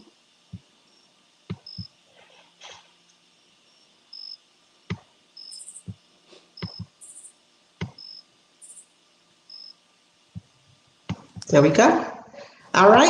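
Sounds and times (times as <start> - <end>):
faint clicks and taps on device: 1.5 - 1.9, 6.6 - 7.0, 7.8 - 8.1, 10.3 - 11.5.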